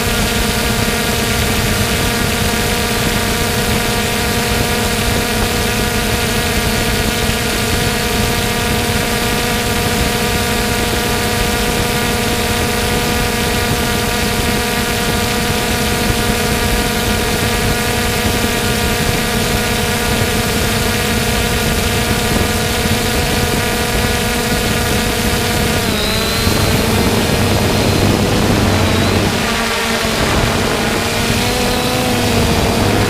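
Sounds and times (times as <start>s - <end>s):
drone propellers humming: 0.0s - 33.0s.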